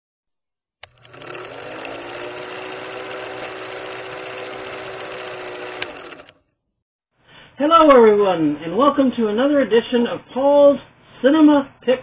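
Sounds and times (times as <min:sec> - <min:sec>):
film projector clattering: 0:00.8 - 0:06.4
projector motor whine: 0:00.8 - 0:06.4.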